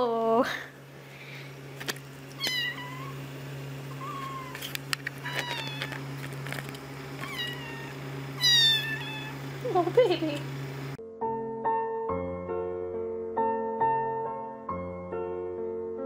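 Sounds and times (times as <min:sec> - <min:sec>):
cat meowing: 0:02.4 - 0:03.2, 0:03.9 - 0:06.1, 0:07.2 - 0:09.4.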